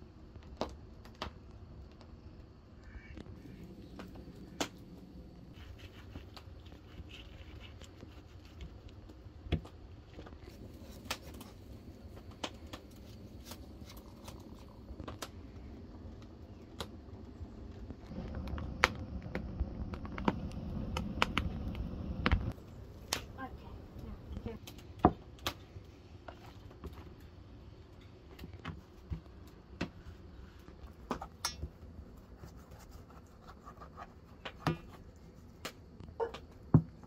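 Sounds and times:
low rumble: 3.3 - 6.9, 10.4 - 24.6.

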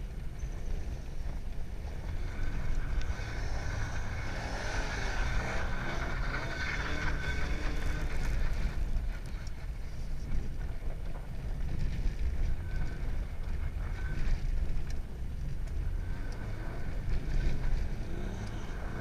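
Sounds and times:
car engine rumbling: 0.0 - 19.0
tyre and wind noise: 0.0 - 19.0.

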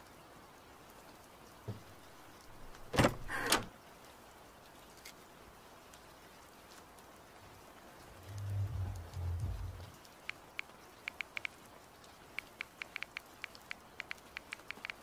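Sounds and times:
steady rain: 0.0 - 15.0
low rumble: 7.9 - 10.0.

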